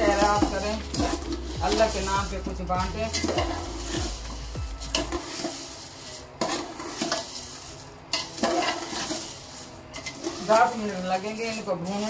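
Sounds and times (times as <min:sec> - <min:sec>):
light sizzle: 0:00.0 - 0:12.0
metal spoon scraping a pot: 0:00.0 - 0:12.0.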